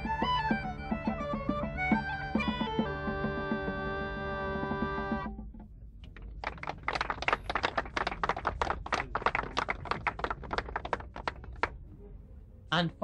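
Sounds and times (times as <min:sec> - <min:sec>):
crowd clapping: 0:06.2 - 0:11.8.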